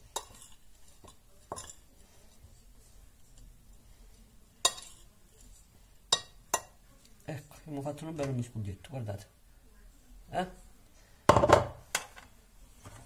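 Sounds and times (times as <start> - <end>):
ceramic plate clinking: 0.2 - 1.8, 4.7 - 5.0, 6.1 - 6.8.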